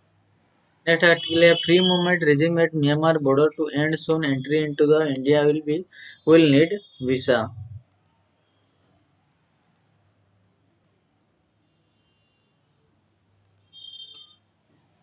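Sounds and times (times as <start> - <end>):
clicks: 9.6 - 9.9, 13.4 - 14.4.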